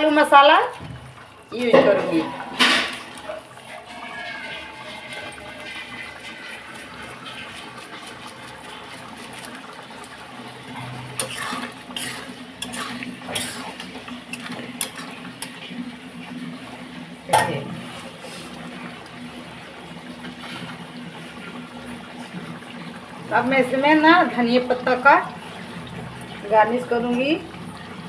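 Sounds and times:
curry simmering: 0.0 - 28.0
spatula scraping a metal pan: 1.7 - 9.4, 10.5 - 15.8.

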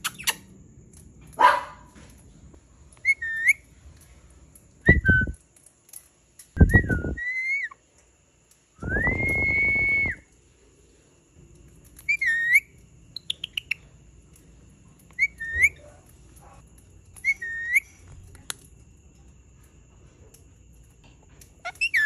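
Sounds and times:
parakeet chirps: 0.0 - 0.5, 3.0 - 3.6, 12.0 - 13.9, 15.1 - 15.8, 17.2 - 18.0, 21.6 - 22.0
parakeet whistling: 3.0 - 3.6, 6.6 - 7.8, 12.1 - 13.8, 15.2 - 15.8, 17.2 - 18.0, 21.7 - 22.0.

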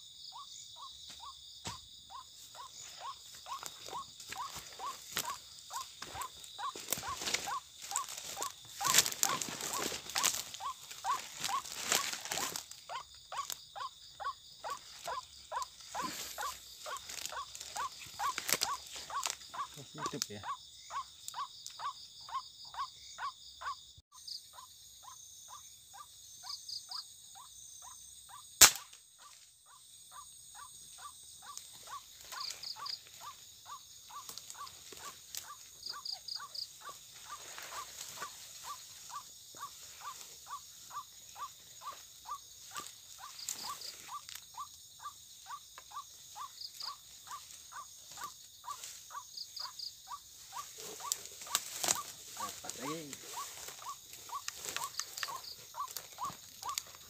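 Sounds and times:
high insect hum: 0.0 - 57.0
insects chirping: 0.0 - 57.0
sharp crack: 28.6 - 29.0.

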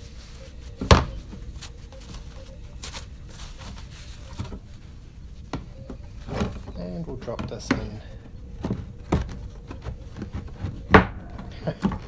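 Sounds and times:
tissue wiping plastic sheet: 0.0 - 5.5
paper rustling: 0.0 - 12.0.

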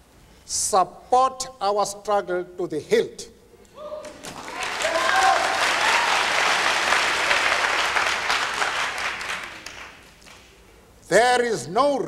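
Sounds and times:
large audience applauding: 4.0 - 10.5.

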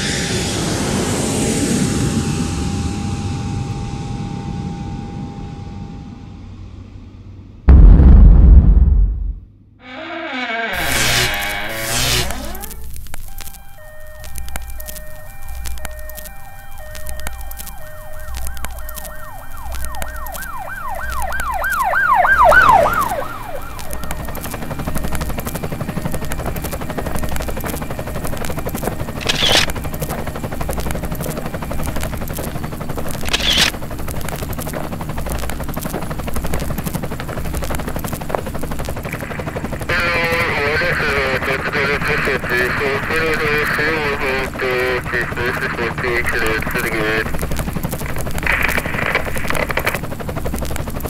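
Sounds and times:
low pulsing hum: 0.2 - 9.8
emergency siren yelping warble: 10.8 - 32.5, 33.2 - 33.7.

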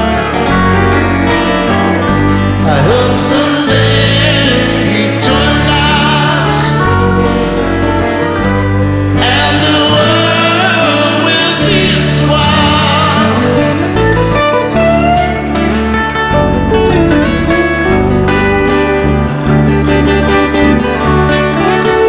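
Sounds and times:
man singing: 0.0 - 0.8, 2.3 - 7.7, 9.1 - 14.0
acoustic guitars playing chords: 0.0 - 22.0
electric bass: 0.0 - 22.0.

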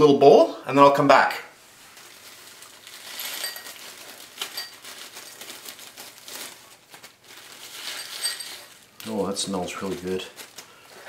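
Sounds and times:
plastic bag crinkling: 1.6 - 11.0
candy pieces clinking into glass: 2.8 - 5.4, 7.4 - 10.3.

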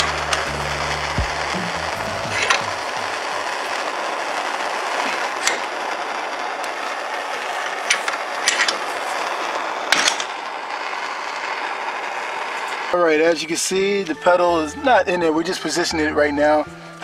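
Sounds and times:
gas torch hissing: 0.0 - 14.4.

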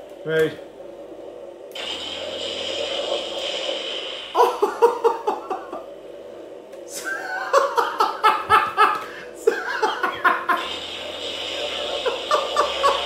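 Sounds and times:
man laughing heartily: 4.4 - 5.9, 6.9 - 10.7, 11.9 - 13.0.

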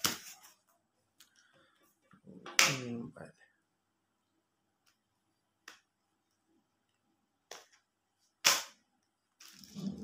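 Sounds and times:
snap: 8.4 - 8.8.

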